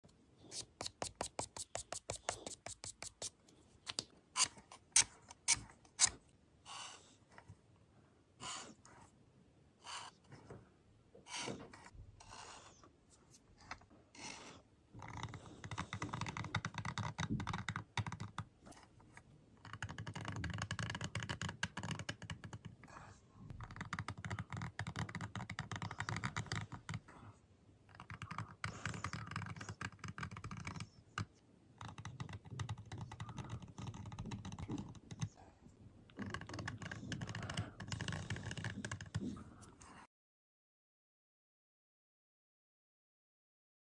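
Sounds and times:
screwdriver scratching paint: 4.4s - 6.2s.

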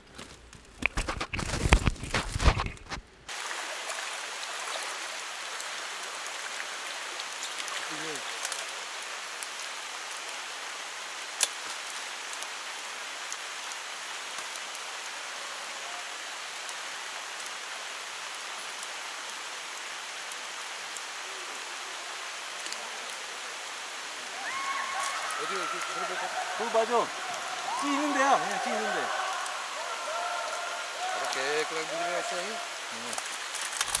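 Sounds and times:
steady rain hiss: 0.0s - 34.0s
raindrop ticks: 7.2s - 10.2s, 11.2s - 15.1s, 16.5s - 19.5s, 22.5s - 23.2s, 33.0s - 34.0s.

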